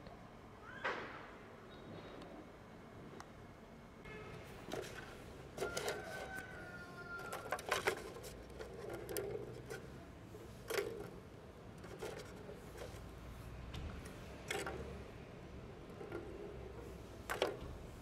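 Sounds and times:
plastic ball rolling and rattling: 0:04.6 - 0:13.3, 0:13.9 - 0:18.0.

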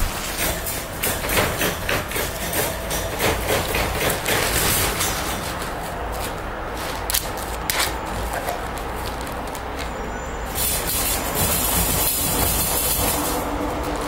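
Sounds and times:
plastic bag crinkling: 0:05.5 - 0:10.1.

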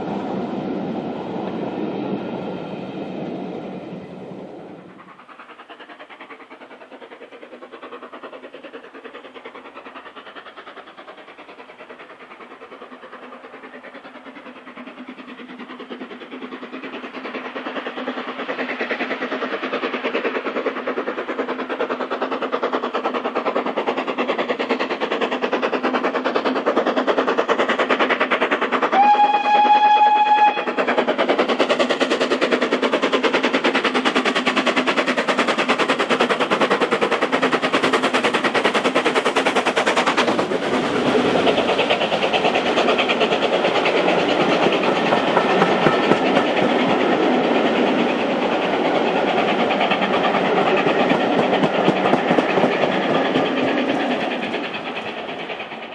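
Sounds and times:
steam locomotive exhaust beating: 0:00.0 - 0:55.9
steam whistle blast: 0:29.0 - 0:30.7.

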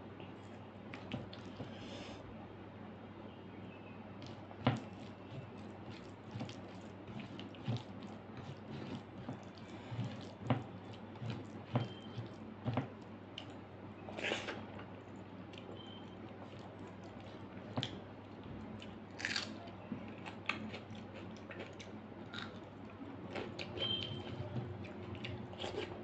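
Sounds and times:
wet squelching of food mixed by hand: 0:04.2 - 0:13.6.

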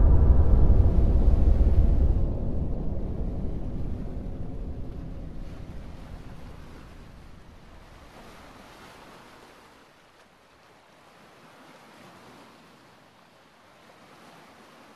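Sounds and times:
low rumble: 0:00.0 - 0:08.2.

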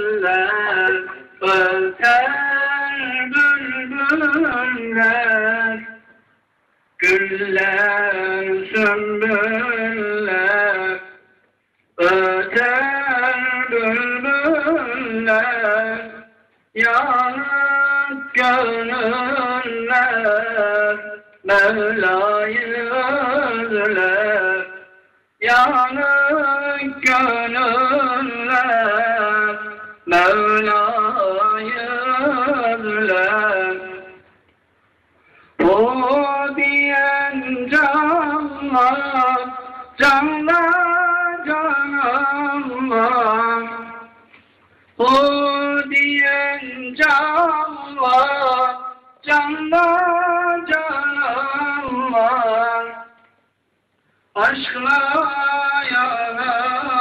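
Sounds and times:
man chanting religious recitation: 0:00.0 - 0:06.2, 0:07.0 - 0:11.4, 0:12.0 - 0:34.3, 0:35.5 - 0:53.3, 0:54.3 - 0:57.0
man breathing: 0:35.1 - 0:35.6.

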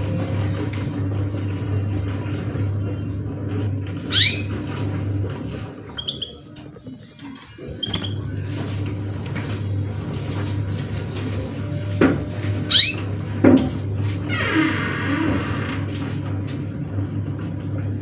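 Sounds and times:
finches chirping: 0:04.1 - 0:04.6, 0:12.7 - 0:13.1.

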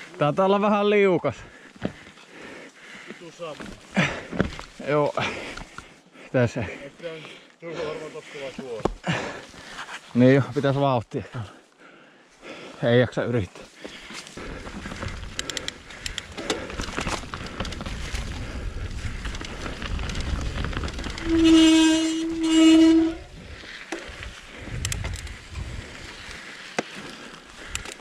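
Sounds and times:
bike tyre noise: 0:13.8 - 0:28.0
bike frame rattling and clacking: 0:14.5 - 0:23.3.

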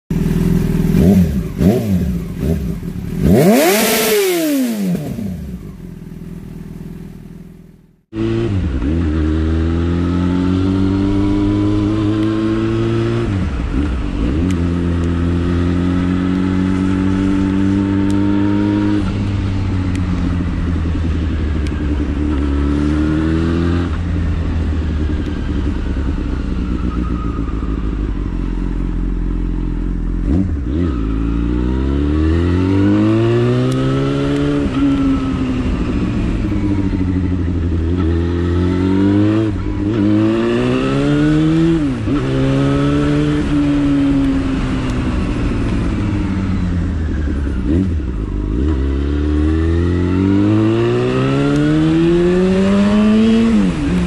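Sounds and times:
motorcycle engine accelerating: 0:00.1 - 0:54.0.

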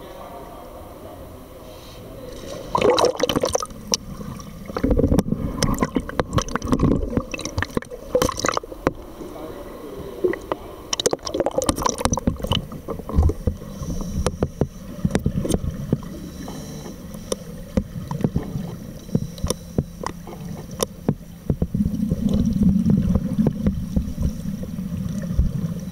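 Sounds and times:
muffled underwater rumble: 0:00.0 - 0:25.9
bubbles burbling underwater: 0:02.6 - 0:09.1, 0:10.2 - 0:13.7, 0:20.0 - 0:25.9.

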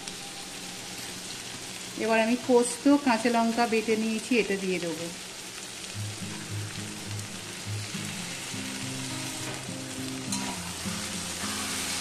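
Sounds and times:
vegetables sizzling in oil: 0:00.0 - 0:12.0
background music low notes: 0:05.8 - 0:12.0.

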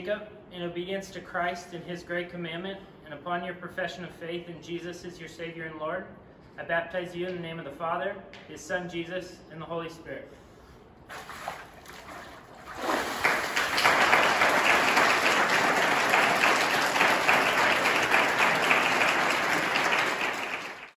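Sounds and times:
crowd clapping: 0:12.8 - 0:21.0.

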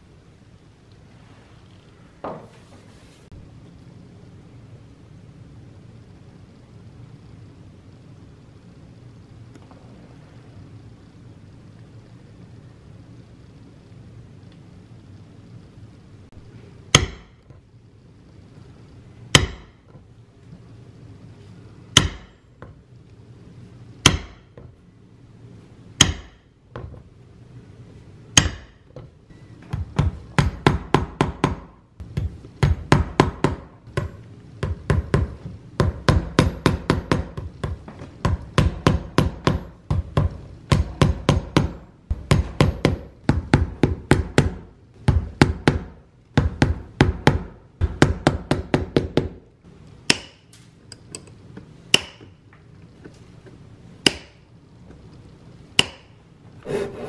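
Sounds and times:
hammer tapping tacks: 0:16.9 - 0:17.6, 0:19.3 - 0:20.0, 0:24.0 - 0:24.7, 0:26.0 - 0:26.9, 0:28.4 - 0:49.4, 0:50.1 - 0:51.3, 0:51.9 - 0:52.4, 0:54.0 - 0:54.4, 0:55.8 - 0:56.2.

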